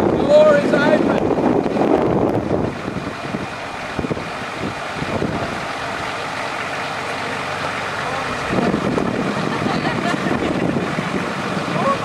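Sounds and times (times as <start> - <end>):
wind on microphone: 0.0 - 6.2, 8.2 - 12.0
truck engine running: 0.0 - 12.0.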